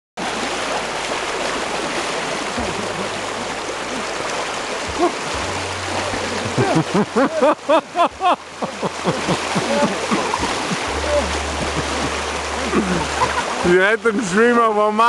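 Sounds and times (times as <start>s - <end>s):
person splashing in water: 0.2s - 7.2s, 8.9s - 13.6s
stream rushing: 0.2s - 15.0s.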